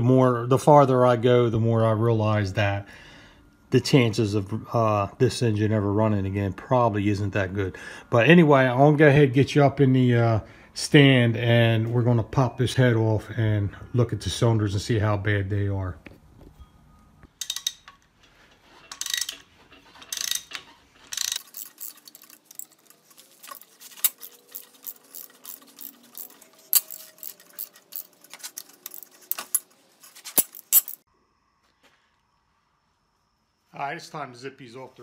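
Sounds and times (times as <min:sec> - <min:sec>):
ratchet wrench clicking: 0:17.4 - 0:18.0, 0:18.9 - 0:28.2.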